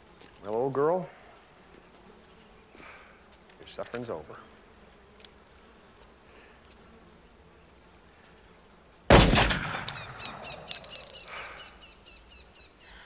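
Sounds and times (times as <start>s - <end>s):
faint outdoor background: 0.0s - 13.0s
handgun shot with echo: 9.1s - 10.8s.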